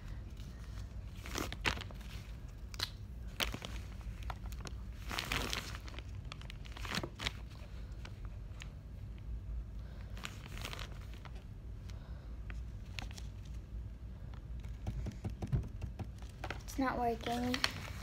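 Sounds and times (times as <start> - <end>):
rubber glove crinkling: 0.2 - 11.9, 12.5 - 13.8.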